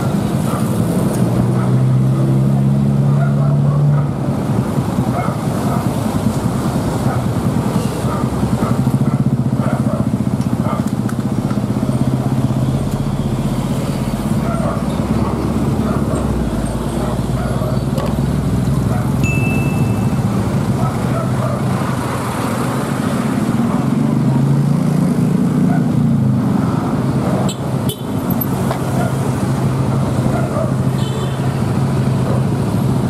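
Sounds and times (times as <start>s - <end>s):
road traffic passing: 0.0s - 33.0s
short high-pitched tone: 19.2s - 20.3s.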